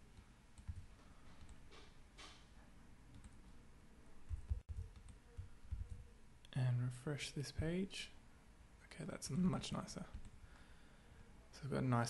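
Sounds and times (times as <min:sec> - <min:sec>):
soft low thumps: 0:04.3 - 0:06.0.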